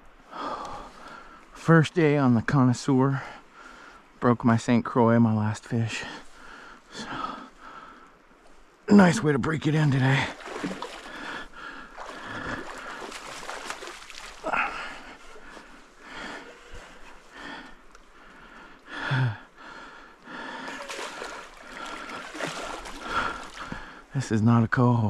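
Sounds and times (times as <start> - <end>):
fish thrashing and splashing: 10.3 - 15.5, 20.6 - 23.7.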